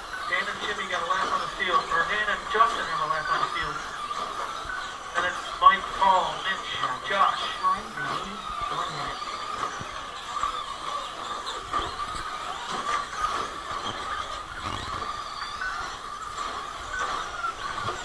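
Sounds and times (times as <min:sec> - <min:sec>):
rc trucks motors whining: 0:00.0 - 0:18.0.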